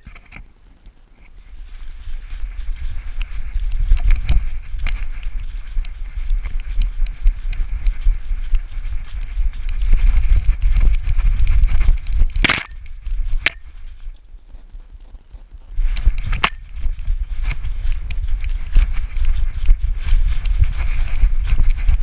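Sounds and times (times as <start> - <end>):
sharp clicks: 2.4 - 13.8, 15.8 - 22.0.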